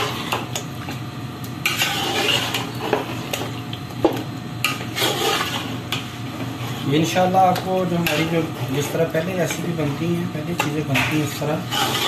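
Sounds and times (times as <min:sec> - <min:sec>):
spoon scraping and churning paste: 0:01.6 - 0:03.5, 0:04.6 - 0:12.0.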